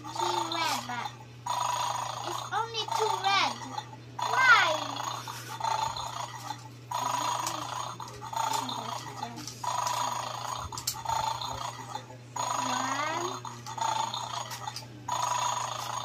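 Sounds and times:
electronic toy sound effect: 0.1 - 6.3, 6.9 - 9.0, 9.6 - 16.0.

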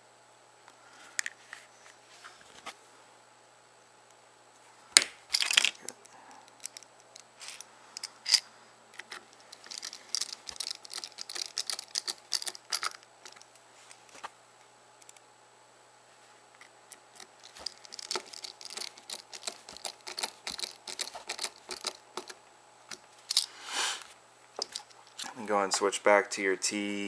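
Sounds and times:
plastic parts clicking and tapping: 9.0 - 14.2, 16.6 - 23.4.

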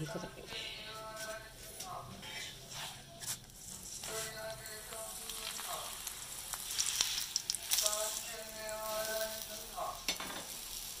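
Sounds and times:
flatbread sizzling in ghee: 1.2 - 11.0
oil crackling and spitting: 4.9 - 9.9.

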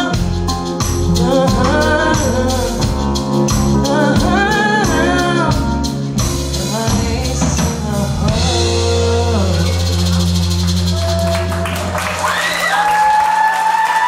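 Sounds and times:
woman singing: 0.0 - 10.3
live band playing soul rock: 0.0 - 12.6.

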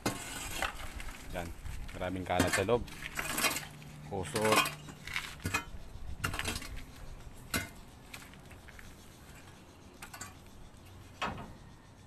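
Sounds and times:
rake scraping through leaves: 0.0 - 5.6.

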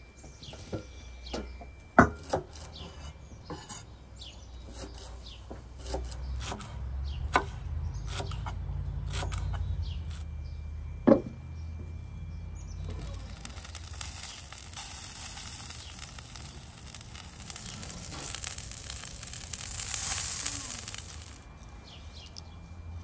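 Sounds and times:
low rumble: 12.2 - 21.7.

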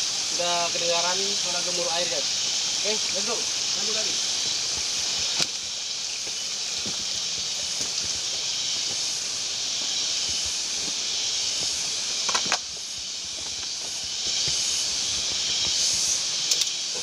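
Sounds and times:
high hiss of rainforest: 0.0 - 17.0
footsteps on leaf litter: 2.8 - 17.0
twigs snapping: 5.2 - 5.6, 12.2 - 12.7.

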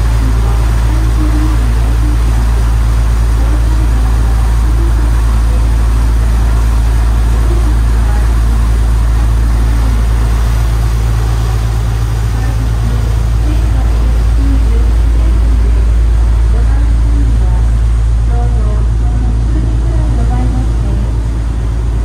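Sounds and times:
boat engine deep drone: 0.0 - 22.0.

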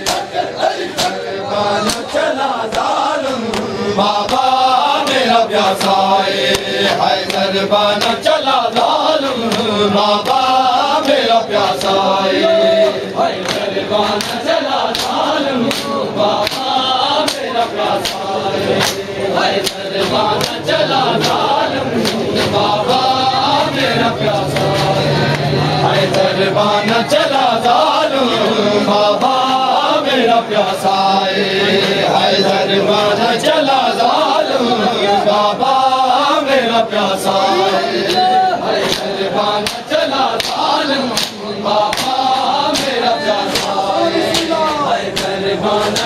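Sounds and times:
hands slapping chests: 0.0 - 1.2, 1.8 - 12.0, 13.3 - 22.8, 38.0 - 46.0
men chanting together: 0.0 - 46.0.

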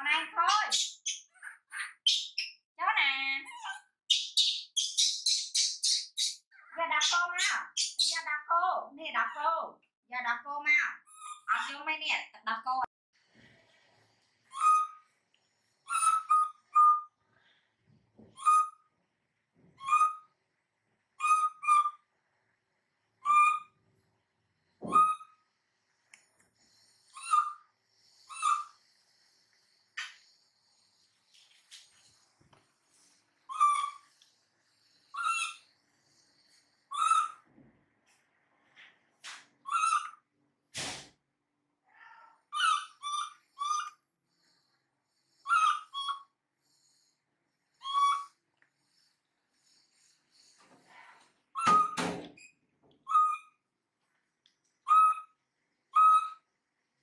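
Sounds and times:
baby monkey squeaky calls: 3.5 - 8.2, 11.0 - 11.7, 14.5 - 15.0, 15.9 - 17.0, 19.8 - 20.2, 21.2 - 22.0, 27.2 - 27.6, 28.3 - 28.7, 33.5 - 34.0, 35.1 - 35.6, 36.9 - 37.4, 39.6 - 40.2, 42.5 - 44.0, 45.4 - 46.3, 47.8 - 48.4, 53.0 - 53.6, 54.8 - 55.4, 56.0 - 56.4.

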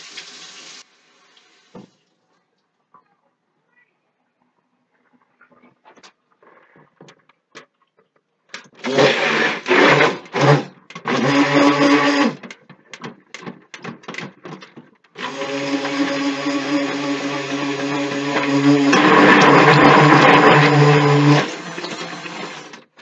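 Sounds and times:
immersion blender running: 8.8 - 12.4, 15.2 - 23.0.

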